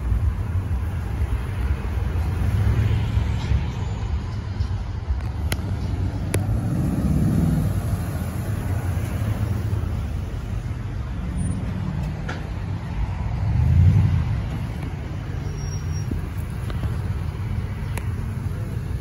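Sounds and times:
truck engines rumbling: 0.0 - 19.0.

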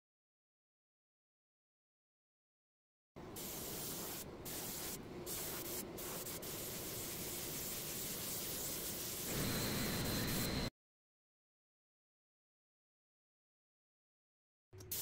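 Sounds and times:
spray gun hissing: 3.4 - 10.6.

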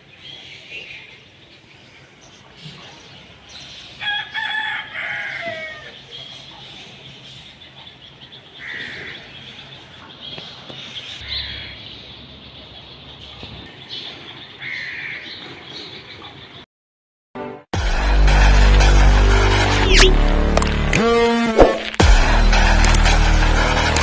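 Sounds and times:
rooster crowing: 4.0 - 6.0
bird calls: 5.4 - 16.6
small birds chirping: 5.8 - 16.6.

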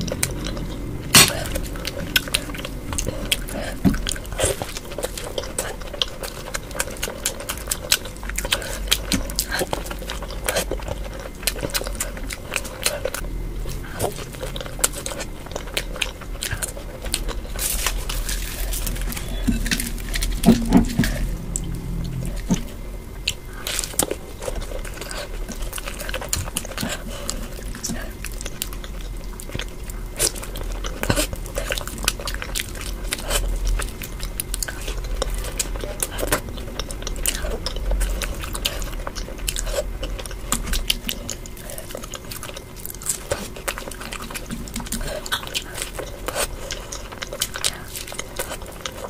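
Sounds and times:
person chewing wet food: 0.0 - 49.0.

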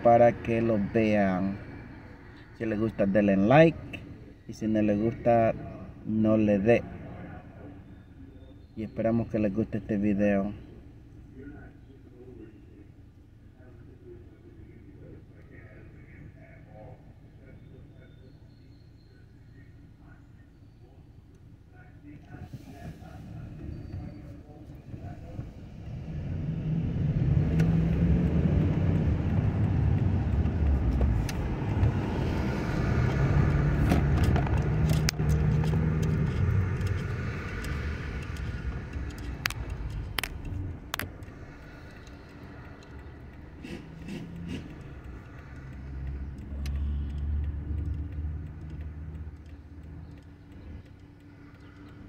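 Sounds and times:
car engine and road noise: 0.0 - 52.0
sharp clicks: 27.2 - 32.1, 33.0 - 52.0.

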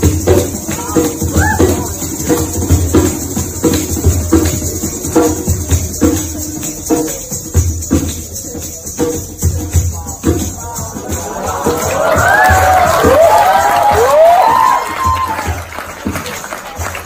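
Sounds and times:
ankle bells jingling: 0.0 - 12.9
djembe drumming: 0.0 - 17.0.

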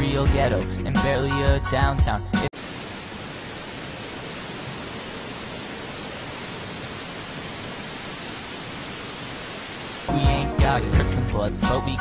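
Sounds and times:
static-like hiss: 2.6 - 11.0.

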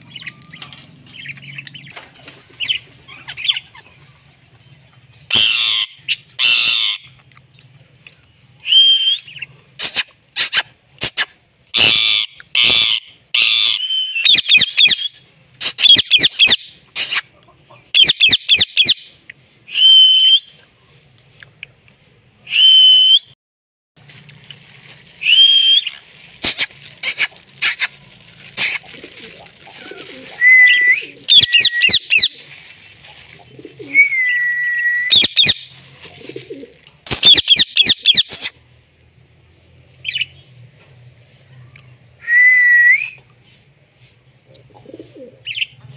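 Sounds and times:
parrot shrill calls: 5.3 - 7.1, 11.8 - 15.1, 30.4 - 32.3, 35.1 - 35.7, 37.2 - 38.5.

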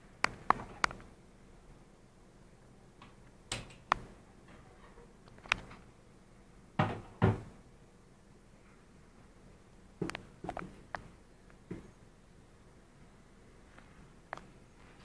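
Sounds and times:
knocks and thumps: 6.8 - 7.5.

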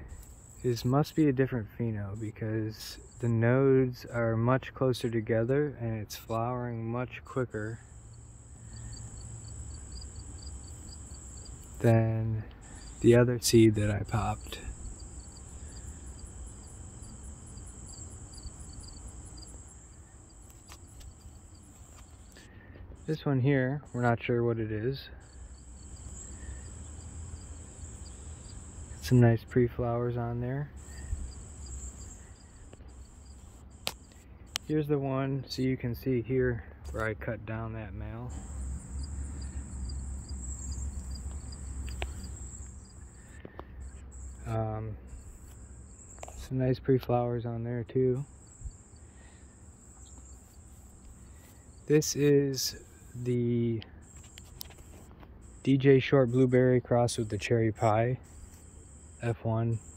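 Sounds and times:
insects trilling: 0.0 - 5.6, 7.4 - 37.0, 38.1 - 59.9
pulsing insect call: 3.0 - 3.4, 7.8 - 12.0, 12.6 - 23.2, 25.2 - 29.7, 30.7 - 34.8, 38.3 - 46.4, 48.2 - 53.3, 54.0 - 56.6, 58.2 - 59.9.

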